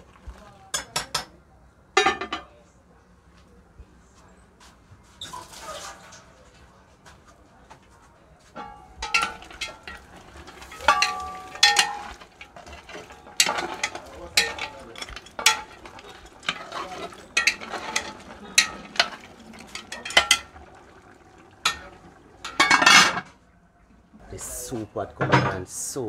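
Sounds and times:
metal spoon stirring a pot: 8.6 - 23.3
pot lid clattering: 8.6 - 23.3.

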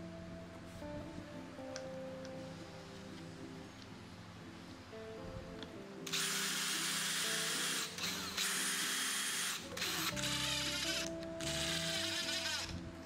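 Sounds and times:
power drill whining: 6.1 - 12.9.

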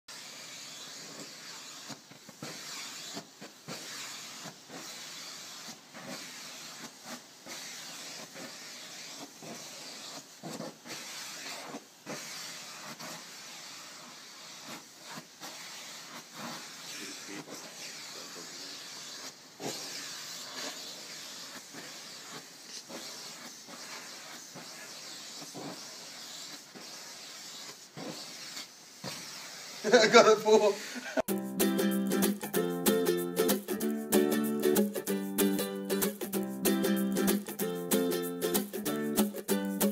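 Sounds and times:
vacuum cleaner running: 0.1 - 27.4.

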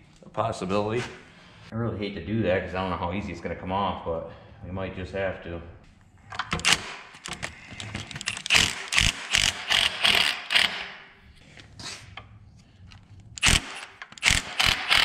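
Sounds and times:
impact driver bursts: 8.2 - 11.0, 13.4 - 15.0.

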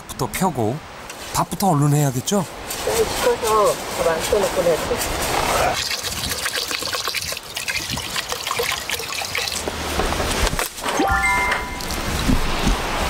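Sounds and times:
water splashing in a pot: 5.8 - 9.7.

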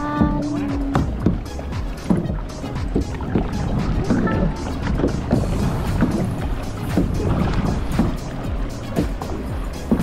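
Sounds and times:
background music: 0.0 - 10.0
kayak paddles splashing: 0.0 - 10.0.

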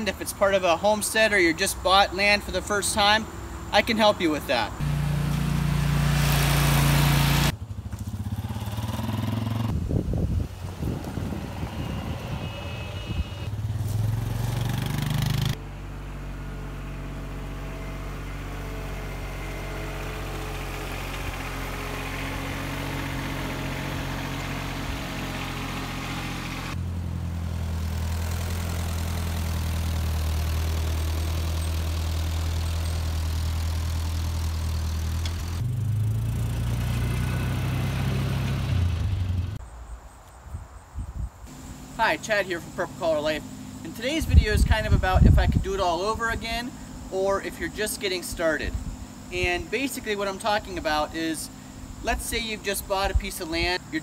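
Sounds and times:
golf cart engine: 0.0 - 39.6, 41.5 - 54.0
utility vehicle engine: 0.0 - 39.6, 41.5 - 54.0
compact tractor engine: 4.5 - 9.8, 10.8 - 39.6, 41.5 - 52.3.

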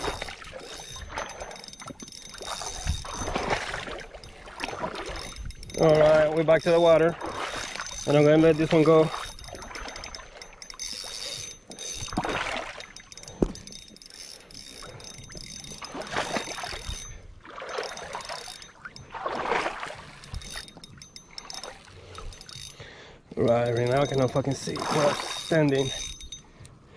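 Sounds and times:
river water splashing: 0.0 - 26.4.

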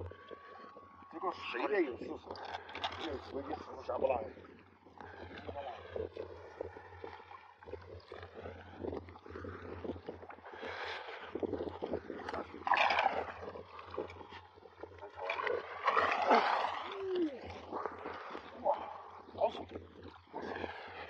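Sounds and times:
water splashing: 5.0 - 21.0.

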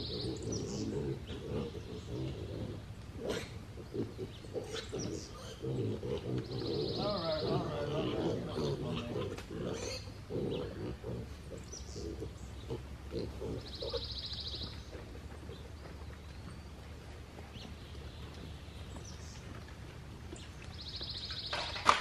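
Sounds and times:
pigs grunting: 0.0 - 14.2, 14.8 - 15.9.

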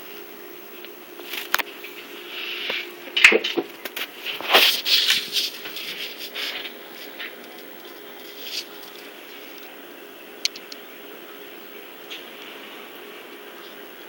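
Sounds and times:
faint steady hum: 0.0 - 14.0
handheld camera rustling: 3.8 - 9.7.

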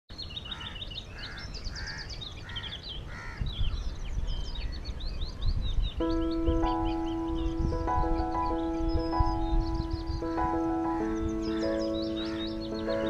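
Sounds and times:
birds chirping: 0.1 - 13.0
low bird call: 0.4 - 13.0
sustained music notes: 6.0 - 13.0.

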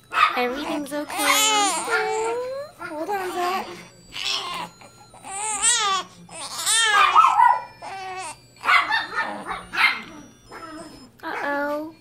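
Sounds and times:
baby crying: 0.7 - 8.4.

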